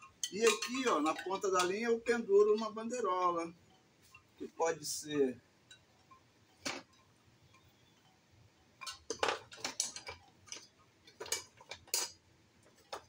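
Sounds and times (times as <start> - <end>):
small hard objects clinking: 0.0 - 2.8, 8.8 - 13.0.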